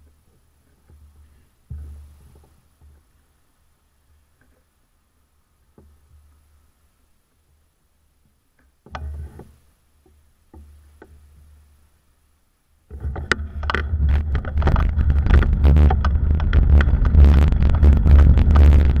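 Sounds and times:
wind rumble on microphone: 0:12.9 - 0:19.0
bicycle rattling over pavement: 0:13.6 - 0:19.0.

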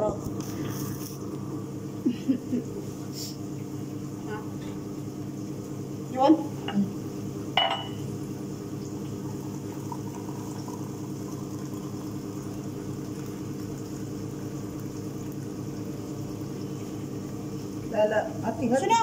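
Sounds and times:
low mechanical hum: 0:00.0 - 0:19.0.

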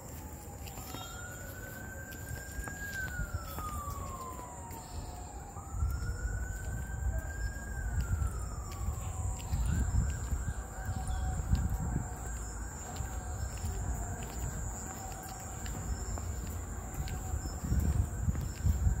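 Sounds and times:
emergency vehicle siren wailing: 0:00.0 - 0:19.0.

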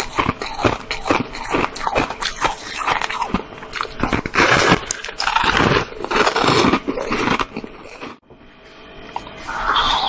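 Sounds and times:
ice crunched between teeth: 0:00.0 - 0:08.2.

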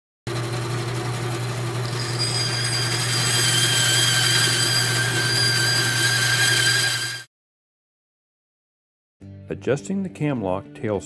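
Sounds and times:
power tool motor running: 0:00.3 - 0:07.3.

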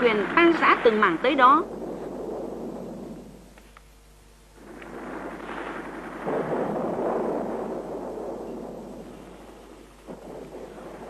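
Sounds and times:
rumbling noise: 0:00.0 - 0:11.0.

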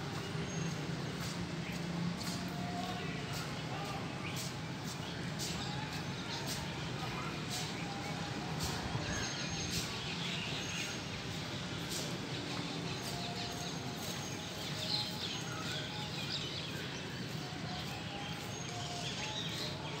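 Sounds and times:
steady outdoor hiss: 0:00.0 - 0:20.0
small birds chirping: 0:03.8 - 0:20.0.

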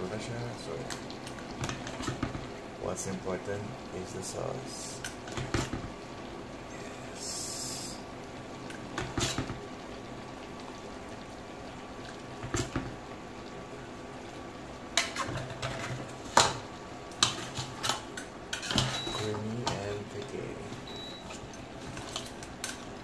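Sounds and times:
sauce bubbling in a pot: 0:00.0 - 0:23.0.

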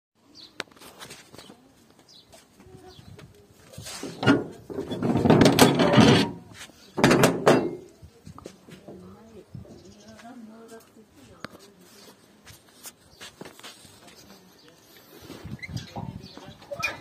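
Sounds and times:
metal bolts rattling and scraping: 0:04.0 - 0:07.9.

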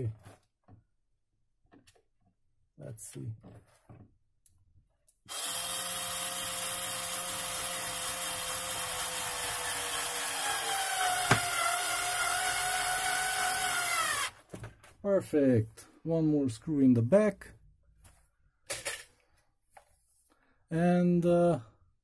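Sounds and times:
electric screwdriver motor whine: 0:05.3 - 0:14.3.

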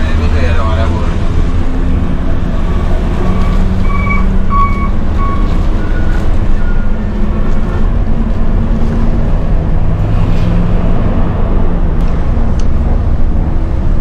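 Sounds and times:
bus engine rumbling: 0:00.0 - 0:14.0
short high beeps: 0:03.4 - 0:05.5.

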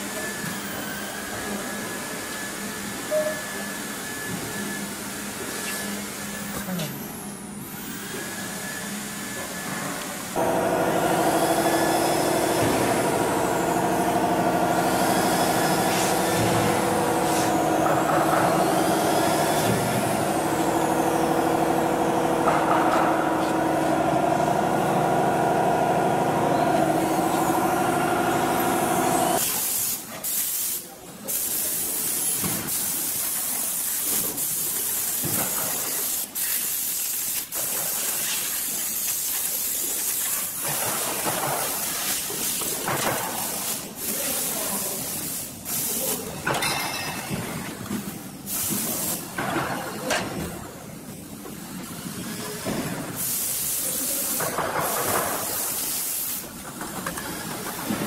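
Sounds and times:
machine drone: 0:10.4 - 0:29.4.

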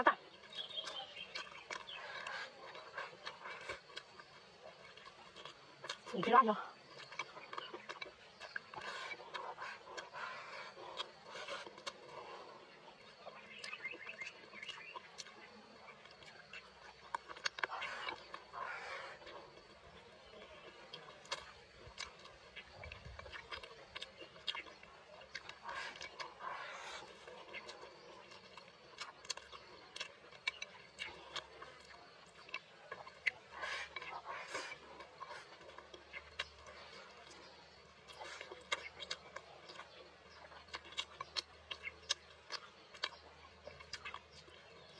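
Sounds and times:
person chewing food: 0:00.0 - 0:44.9
wet mouth clicks: 0:27.0 - 0:37.4.

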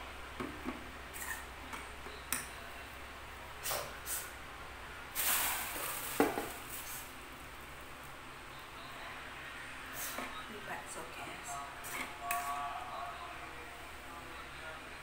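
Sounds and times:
hiss-like noise: 0:03.6 - 0:04.4, 0:05.1 - 0:07.2.

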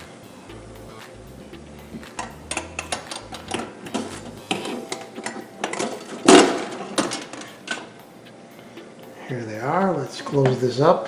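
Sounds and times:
metal basket clinking and rattling: 0:02.2 - 0:07.9.

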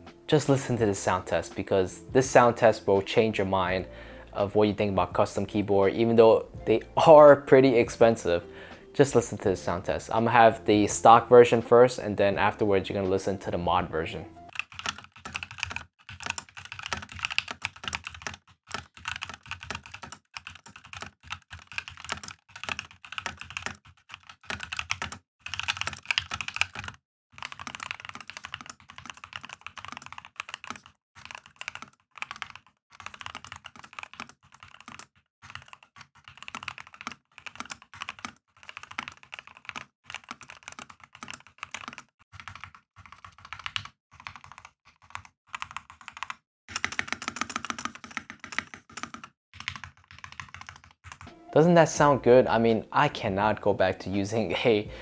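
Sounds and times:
fast typing on mechanical keyboard: 0:14.5 - 0:51.3.

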